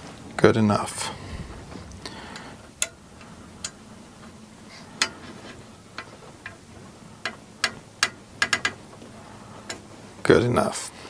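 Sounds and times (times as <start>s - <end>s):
small metal hardware clicking: 7.2s - 8.8s.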